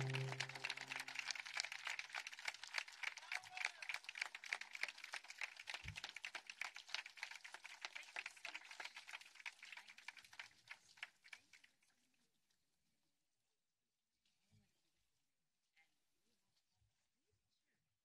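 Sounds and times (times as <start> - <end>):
crowd applauding: 0.0 - 11.6.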